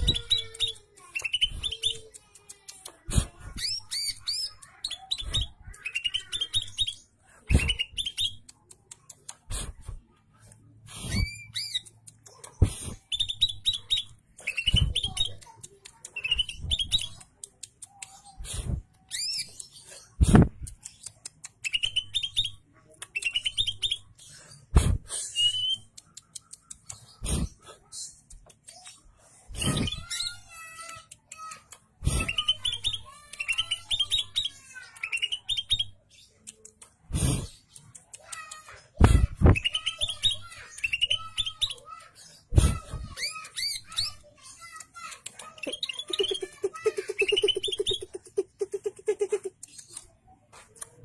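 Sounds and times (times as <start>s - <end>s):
bird chirping and whistling: 0.0s - 2.0s, 3.6s - 8.4s, 11.0s - 11.9s, 12.9s - 15.4s, 16.2s - 17.2s, 18.5s - 20.4s, 21.6s - 22.6s, 23.2s - 24.1s, 25.2s - 25.9s, 29.5s - 30.4s, 32.0s - 36.0s, 39.4s - 41.8s, 45.6s - 46.5s, 47.1s - 48.1s
bird singing chirps and whistles: 0.2s - 2.0s, 13.1s - 15.4s, 16.2s - 17.2s, 25.3s - 25.9s, 39.5s - 41.8s.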